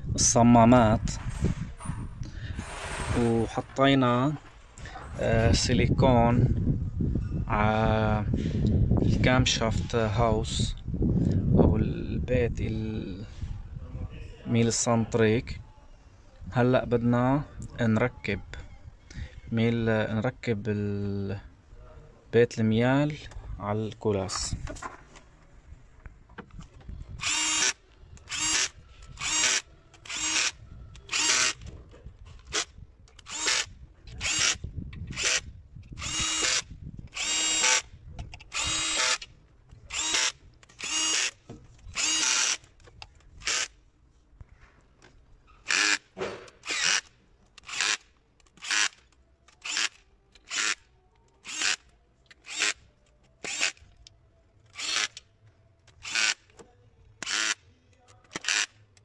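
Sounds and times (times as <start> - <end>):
cordless drill motor whine: 27.1 - 31.7, 32.4 - 39.3, 39.9 - 42.7, 45.7 - 46.0, 46.6 - 48.0, 48.6 - 50.8, 51.4 - 52.8, 53.4 - 53.8, 54.7 - 55.2, 55.9 - 56.4, 57.2 - 57.6.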